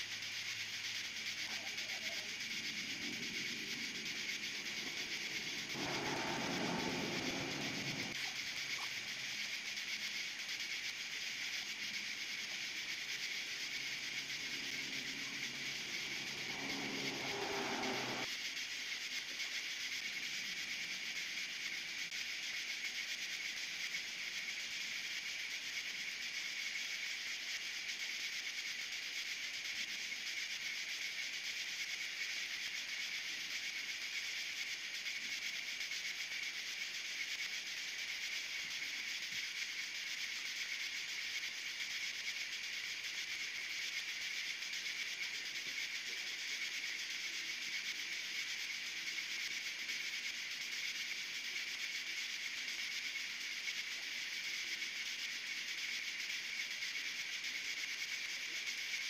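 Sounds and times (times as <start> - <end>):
steady high-pitched hiss: 0.0 - 59.0.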